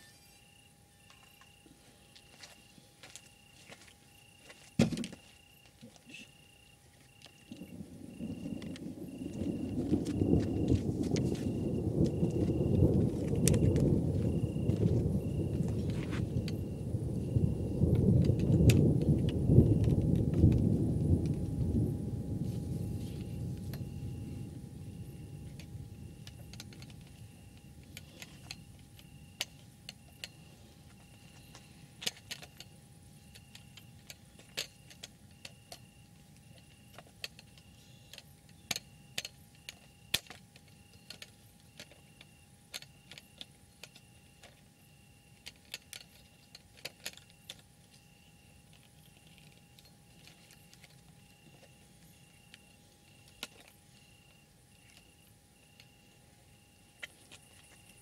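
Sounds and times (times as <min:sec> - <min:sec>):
faint high chirp: 0:00.0 - 0:03.5
raindrops tapping: 0:07.5 - 0:21.9
thunder rumble: 0:07.5 - 0:30.3.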